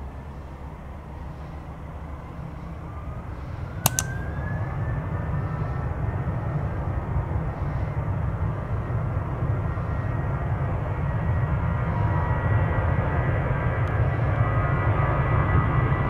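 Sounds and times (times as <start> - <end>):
sharp clicks: 3.8 - 4.3.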